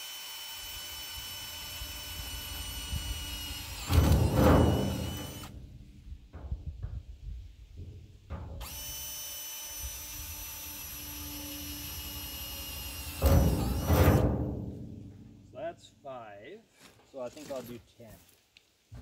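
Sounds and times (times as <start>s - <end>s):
drill bit grinding metal: 0.0s - 5.6s, 8.6s - 14.4s
power drill whining: 0.0s - 5.6s, 8.6s - 14.3s.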